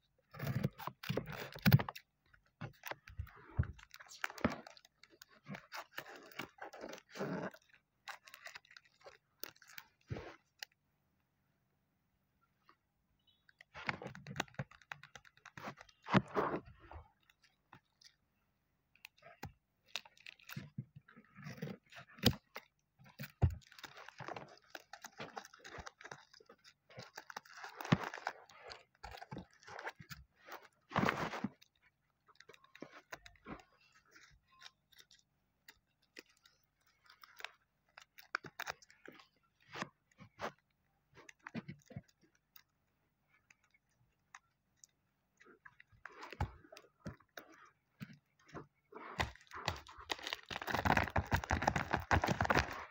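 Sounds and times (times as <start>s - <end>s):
paper and plastic crinkling: 2.6s - 10.7s, 19.0s - 42.6s, 44.8s - 52.9s.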